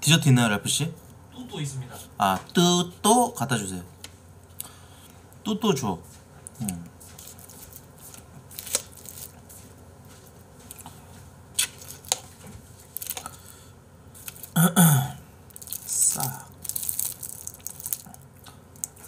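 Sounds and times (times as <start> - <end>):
person vocal sound: 14.6 - 15.3
chewing: 16.5 - 19.0.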